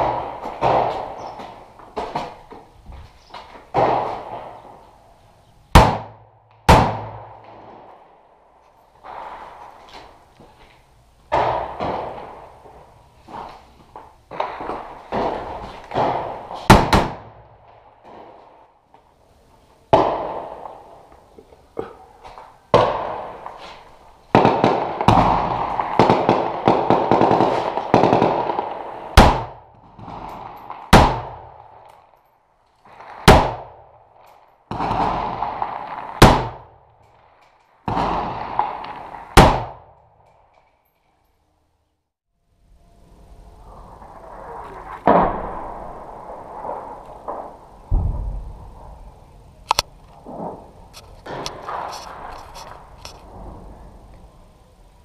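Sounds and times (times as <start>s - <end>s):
rifle gunfire with echo: 5.7s - 7.9s, 14.4s - 18.3s, 22.7s - 23.6s, 24.3s - 31.8s, 33.0s - 33.9s, 34.7s - 36.8s, 37.9s - 40.0s, 44.8s - 49.1s.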